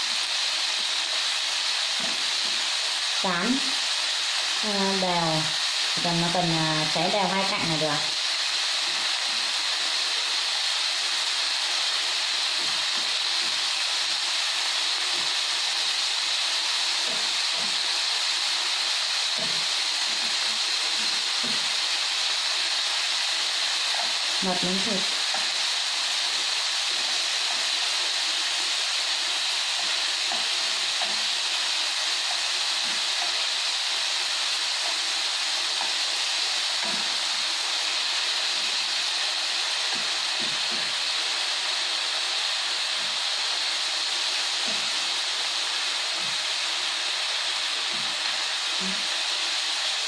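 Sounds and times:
pork sizzling in a pan: 0.0 - 50.0.

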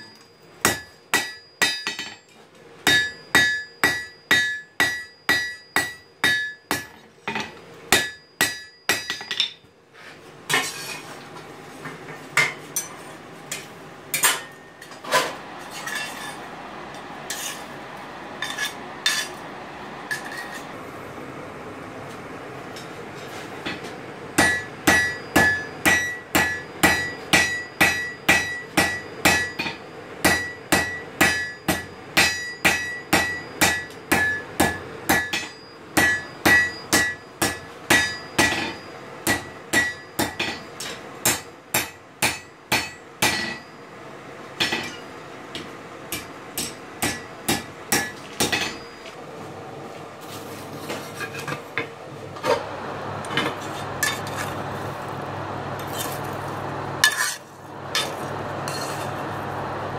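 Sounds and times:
high ringing from the anvil: 0.0 - 2.3, 2.9 - 9.6, 24.4 - 43.9, 44.6 - 45.2, 46.1 - 49.1
hammer striking hot steel on anvil: 0.0 - 9.6, 13.5 - 15.1, 15.7 - 17.7, 18.4 - 19.4, 20.1 - 20.7, 23.6 - 43.8, 44.6 - 49.1, 53.3 - 54.5, 57.0 - 59.1.

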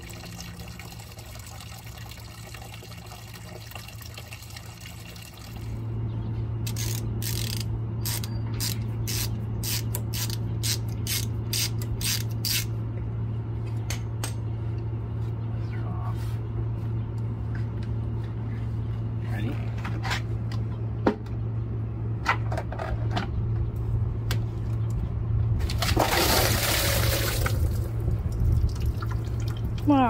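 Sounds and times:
trickle of running liquid: 0.0 - 5.8, 26.7 - 30.0
steady low hum: 0.0 - 30.0
ratchet wrench clicking: 6.6 - 12.7.

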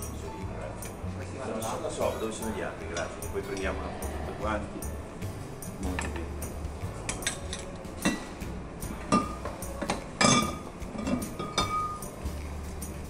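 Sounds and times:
glassware and utensils clinking: 0.0 - 4.0, 5.6 - 8.4, 9.0 - 12.2.

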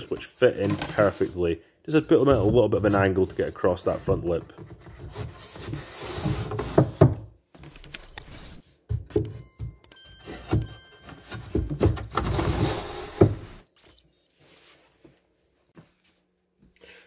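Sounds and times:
wooden panels scraping and knocking: 0.0 - 7.3, 10.5 - 13.6
high chiming jingle: 9.2 - 14.4.

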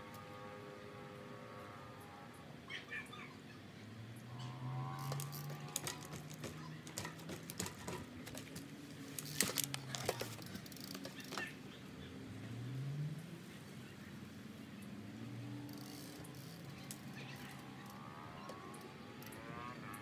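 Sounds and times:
bike clattering on wooden box: 5.0 - 11.5.

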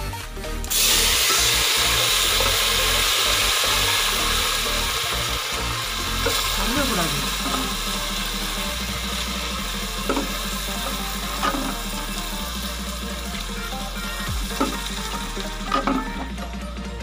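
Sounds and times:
spices sizzling in hot oil: 0.5 - 16.5.

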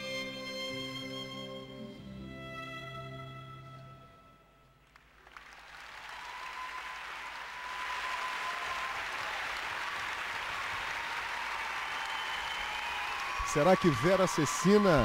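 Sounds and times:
string music: 0.0 - 4.8
crowd applause: 4.8 - 15.0.

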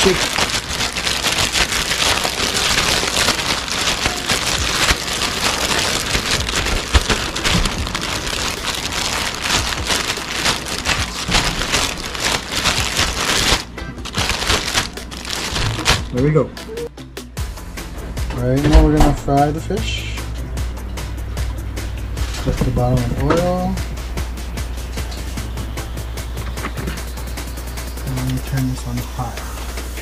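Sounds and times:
bag being shaken with rustling: 0.0 - 16.4.

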